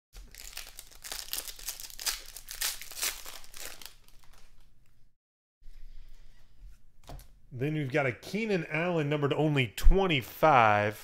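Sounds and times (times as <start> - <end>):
foil wrapper crinkling and tearing: 0.2 - 4.7.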